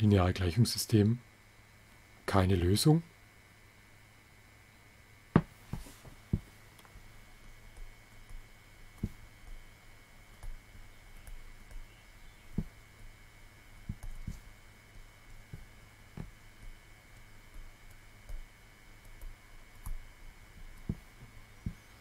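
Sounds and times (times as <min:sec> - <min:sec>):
low electrical hum: 0:00.0 - 0:22.0
stylus tapping on tablet: 0:05.4 - 0:06.5, 0:09.0 - 0:09.7, 0:10.4 - 0:13.1, 0:13.8 - 0:14.4, 0:15.0 - 0:16.8, 0:17.5 - 0:20.0, 0:20.6 - 0:21.9.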